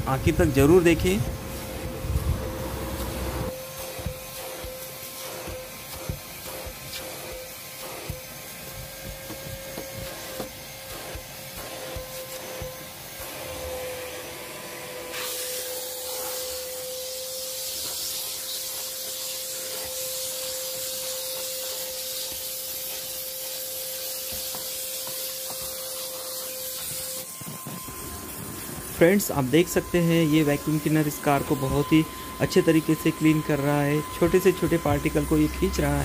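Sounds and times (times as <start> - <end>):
vacuum cleaner motor whine: 0.0 - 36.0
suction hiss: 0.1 - 36.0
nozzle rubbing and knocking on carpet: 3.8 - 13.5, 17.8 - 29.1.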